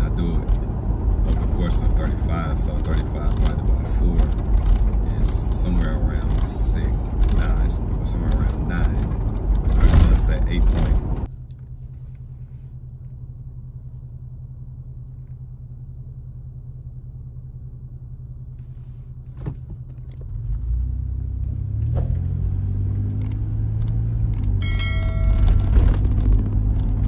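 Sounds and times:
car engine idling: 0:00.0 - 0:20.5
road rumble: 0:00.0 - 0:27.0
clicks: 0:23.1 - 0:26.0
short high chime: 0:24.6 - 0:25.7.

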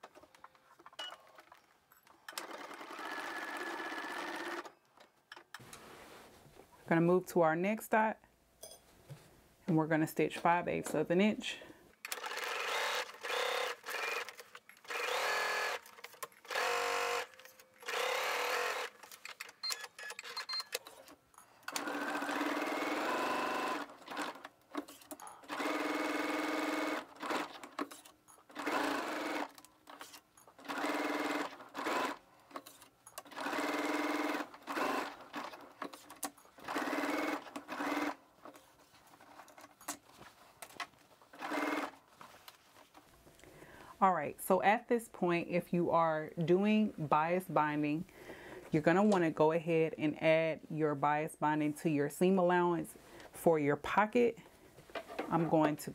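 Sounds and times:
sewing machine stitching: 0:02.3 - 0:04.8, 0:12.0 - 0:38.6, 0:41.3 - 0:42.0.

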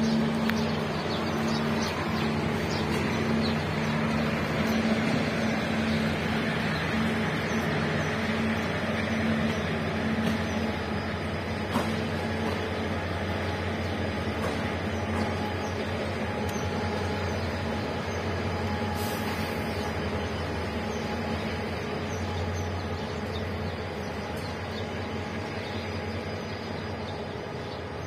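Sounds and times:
diesel engine hum: 0:00.0 - 0:28.0
train wheels on rails: 0:00.0 - 0:28.0.

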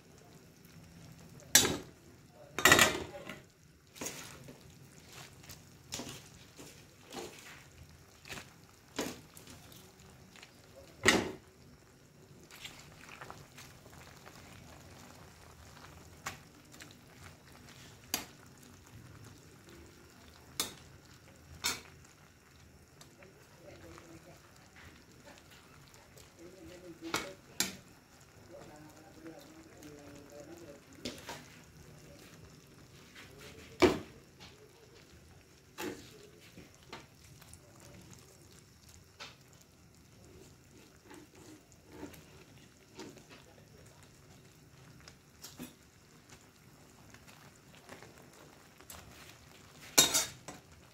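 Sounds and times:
broth simmering and hissing: 0:00.0 - 0:50.9
ladle stirring soup: 0:02.5 - 0:28.7, 0:29.4 - 0:50.9
cooking utensils clattering: 0:02.6 - 0:03.4, 0:49.9 - 0:50.6.

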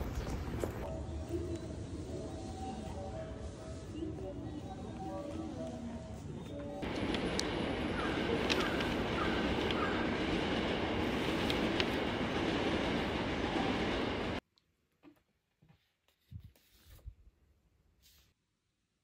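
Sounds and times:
train rumble inside carriage: 0:06.8 - 0:14.4.

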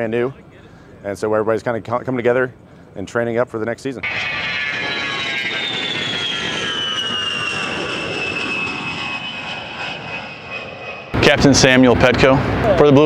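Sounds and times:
jet aircraft flying past: 0:04.0 - 0:13.0.

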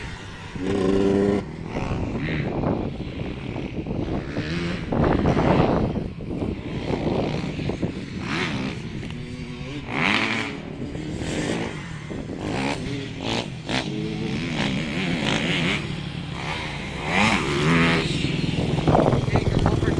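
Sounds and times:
dirt bike engine revving: 0:00.0 - 0:19.9.

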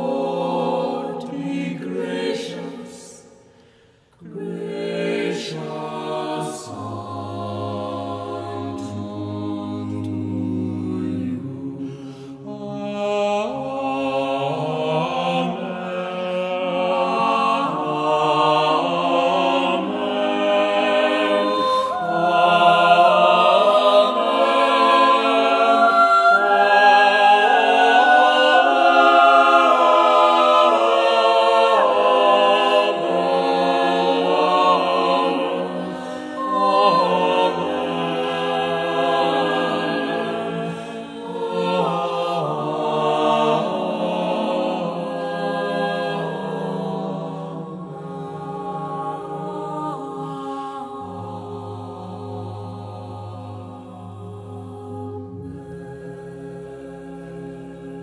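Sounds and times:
choir singing sustained chords: 0:00.0 - 0:58.0.

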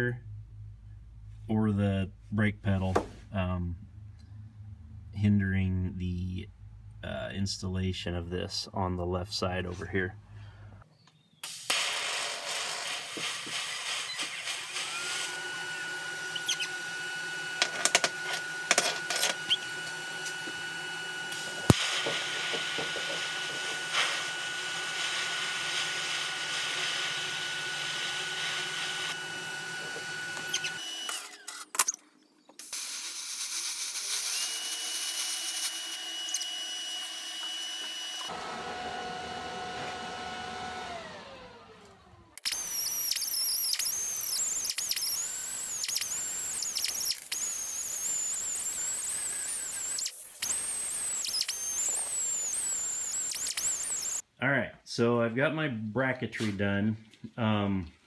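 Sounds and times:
welding arc hissing: 0:11.4 - 0:15.3, 0:21.3 - 0:23.2, 0:42.5 - 0:54.2.

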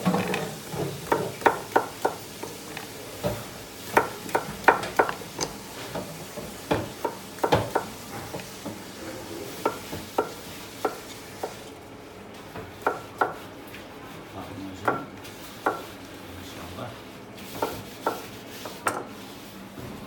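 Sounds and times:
knife knocking on wooden cutting board: 0:06.7 - 0:07.9.

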